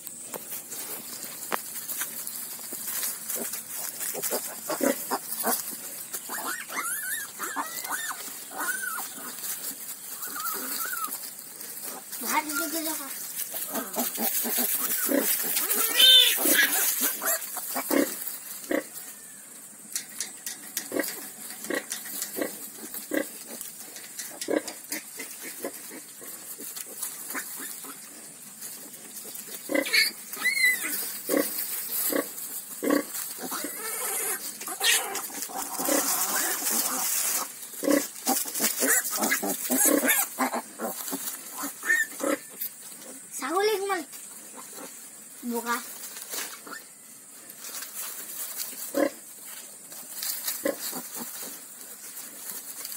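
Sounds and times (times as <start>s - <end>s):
pigs grunting: 3.3s - 19.0s, 20.8s - 43.3s, 48.9s - 49.3s
piglet high squeal: 6.3s - 9.2s, 10.1s - 11.2s, 14.8s - 17.4s, 29.7s - 31.1s, 33.5s - 35.2s, 41.6s - 42.4s.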